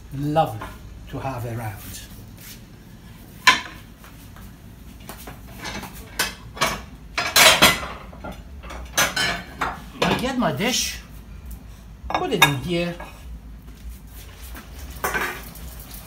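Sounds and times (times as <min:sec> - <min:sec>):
crockery and utensils clinking: 0:05.6 - 0:10.2, 0:12.1 - 0:13.2.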